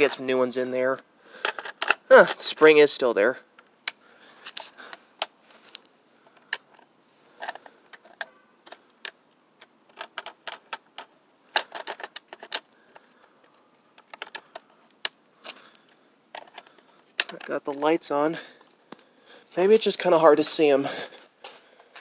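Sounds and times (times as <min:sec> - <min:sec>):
batteries clicking into plastic compartment: 0:01.4 - 0:02.5, 0:06.3 - 0:17.5.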